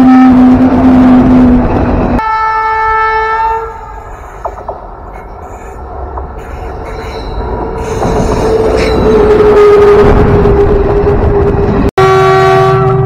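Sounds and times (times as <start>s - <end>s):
train horn blasts: 0.0s - 1.6s, 2.2s - 4.4s, 12.0s - 13.0s
train running rumble: 0.0s - 2.3s, 3.6s - 13.0s.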